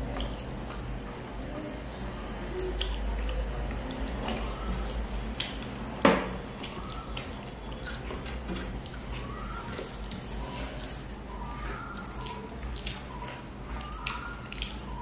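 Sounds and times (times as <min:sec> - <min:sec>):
wet eating clicks: 0:13.9 - 0:15.0.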